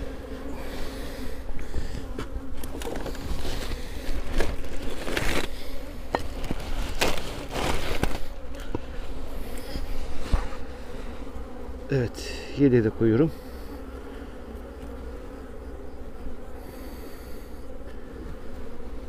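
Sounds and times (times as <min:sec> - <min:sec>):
honeybees humming: 0:00.0 - 0:19.0.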